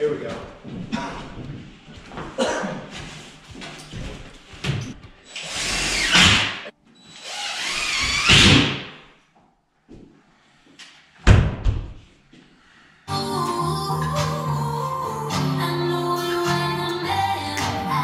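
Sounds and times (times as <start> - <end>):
power drill driving screws: 5.3 - 8.8.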